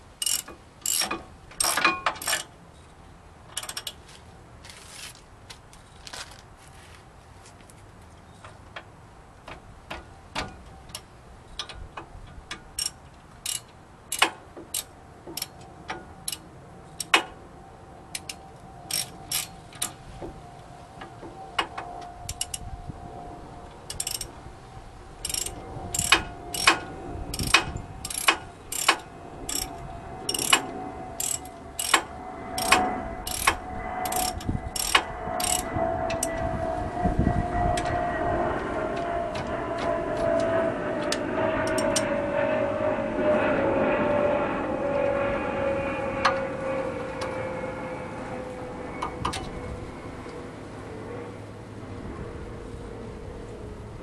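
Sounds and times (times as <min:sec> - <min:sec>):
ratchet wrench clicking: 0:00.2 - 0:02.5, 0:03.6 - 0:04.0, 0:12.8 - 0:15.6, 0:16.2 - 0:16.4, 0:18.2 - 0:20.0, 0:22.3 - 0:22.6, 0:23.9 - 0:24.3, 0:25.2 - 0:26.8, 0:27.4 - 0:30.6, 0:31.2 - 0:36.3
engine drone: 0:08.6 - 0:54.0.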